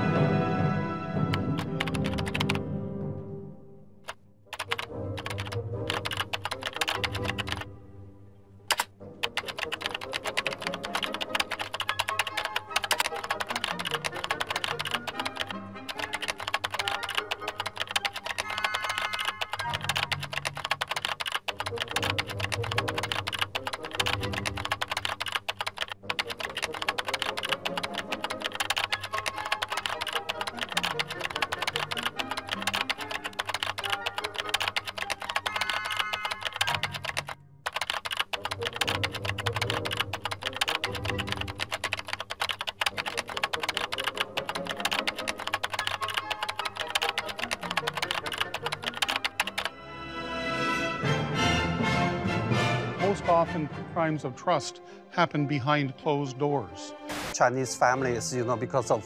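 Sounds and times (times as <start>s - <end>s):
background music: 0.0s - 59.0s
computer keyboard typing: 1.3s - 2.6s, 4.1s - 7.7s, 8.7s - 49.8s.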